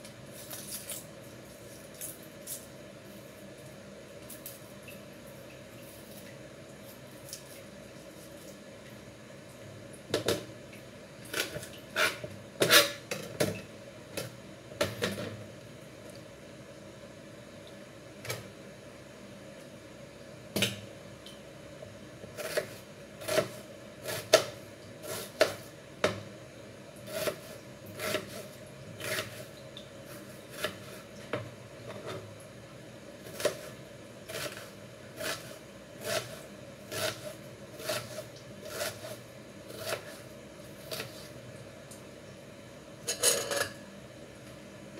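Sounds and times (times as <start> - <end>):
knife chopping on plastic board: 33.3 - 33.7.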